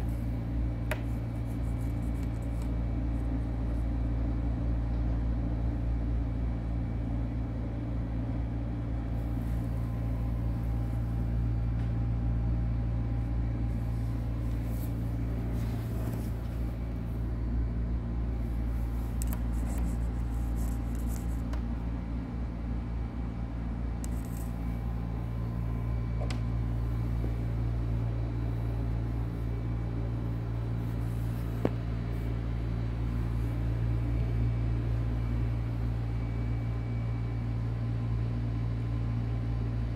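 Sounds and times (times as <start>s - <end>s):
low mechanical hum: 0.0s - 39.9s
faint rustles: 13.7s - 17.1s.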